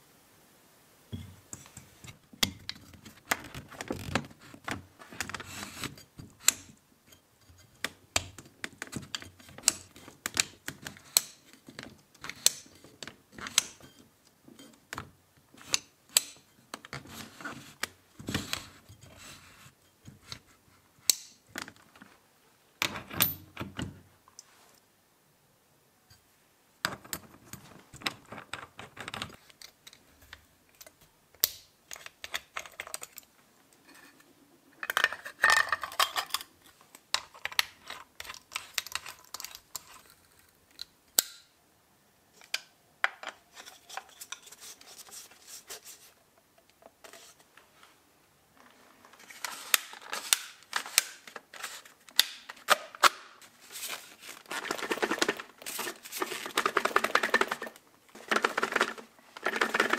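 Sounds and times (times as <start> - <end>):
metal parts clicking and rattling: 37.1 - 40.3, 54.5 - 59.9.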